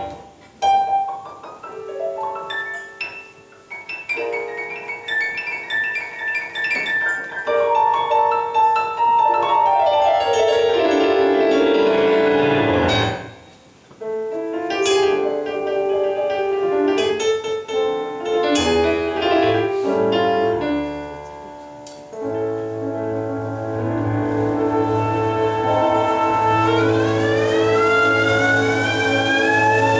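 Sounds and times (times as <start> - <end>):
piano playing klezmer: 0.0 - 29.9
clarinet: 6.7 - 29.9.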